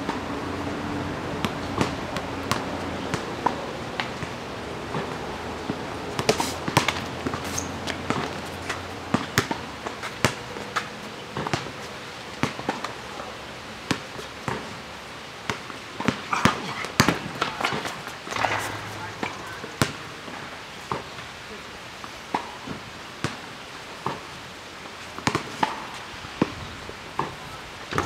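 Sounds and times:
basketball bouncing on asphalt: 1.4s - 5.2s, 6.2s - 11.8s, 13.9s - 14.7s, 15.5s - 21.2s, 25.2s - 26.6s
footsteps: 16.3s - 21.0s.

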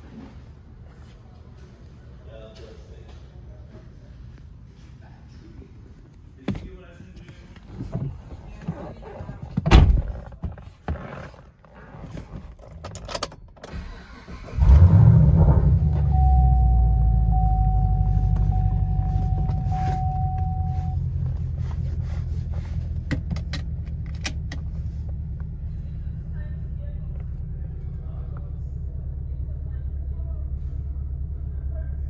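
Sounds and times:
car engine starting and idling: 12.5s - 32.0s
steady electronic tone: 15.4s - 21.0s.

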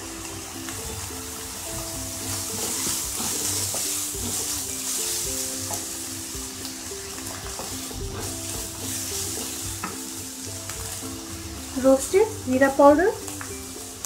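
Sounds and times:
background music: 0.0s - 14.0s
onions sizzling in oil: 0.0s - 14.0s
wooden spatula scraping pan: 1.8s - 5.8s, 7.3s - 10.0s.

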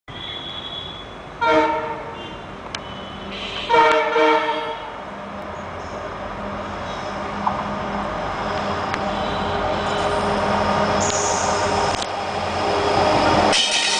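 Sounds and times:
locomotive air horn blasts: 0.2s - 5.0s
locomotive rumble: 1.0s - 13.9s.

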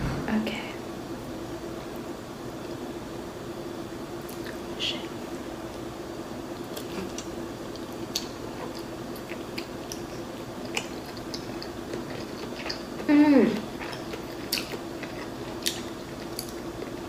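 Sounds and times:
steady low hum: 0.0s - 17.0s
chewing dumpling mouth sounds: 6.6s - 17.0s.

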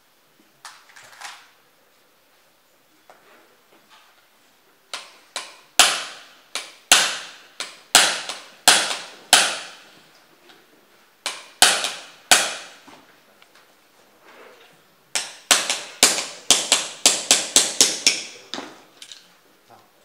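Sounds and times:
hammer tapping steel punch: 4.9s - 9.8s, 11.2s - 12.8s, 15.2s - 18.5s.

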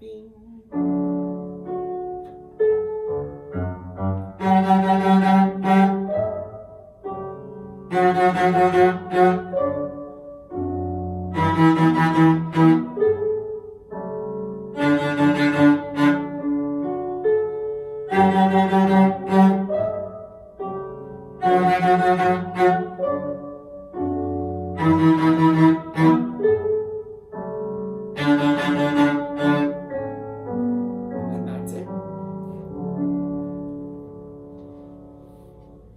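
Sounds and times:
recorded piano accompaniment: 0.0s - 35.9s
bowed cello: 3.3s - 13.6s, 14.6s - 27.0s, 27.9s - 31.9s.

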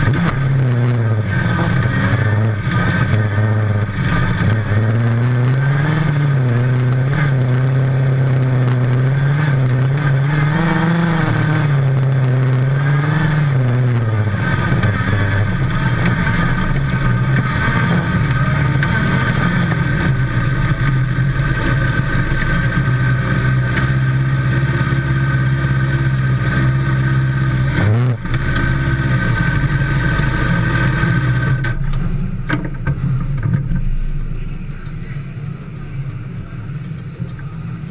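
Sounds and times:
race car engine idling: 0.0s - 37.9s.

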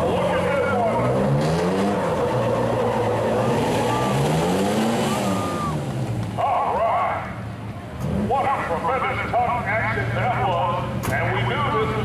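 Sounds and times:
truck engines revving: 0.0s - 12.0s.

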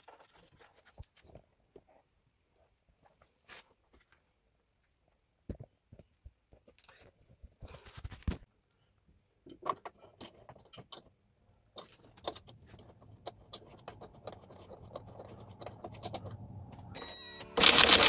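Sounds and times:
steel bolt clinking and scraping: 9.5s - 17.0s.

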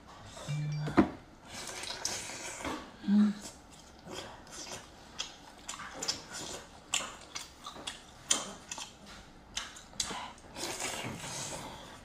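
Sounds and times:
wet chewing and lip smacks: 3.6s - 11.3s.

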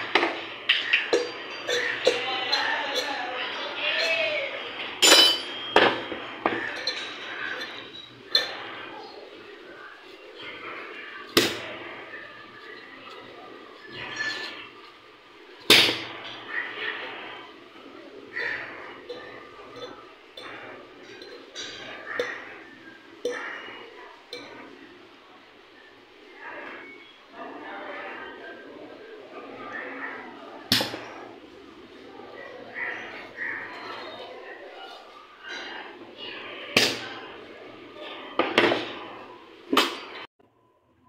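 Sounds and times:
metal taps ringing: 5.0s - 8.7s.

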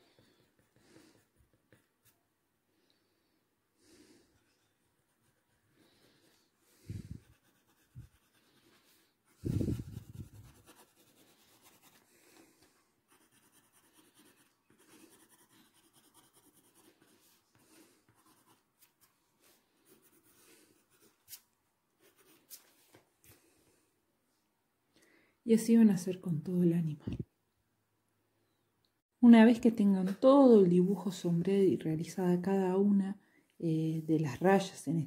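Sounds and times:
pencil scratching on paper: 0.0s - 2.2s, 4.4s - 21.4s.

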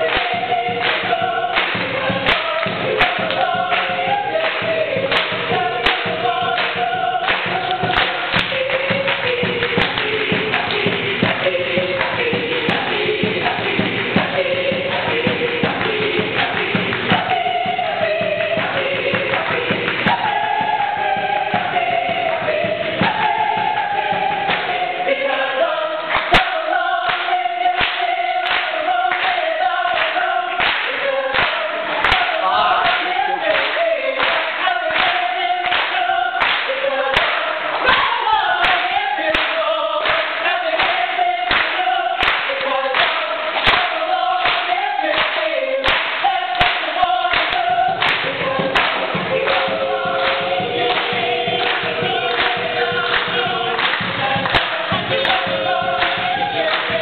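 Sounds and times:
mixed choir singing: 0.0s - 57.0s
sharp percussive beat: 0.0s - 57.0s.

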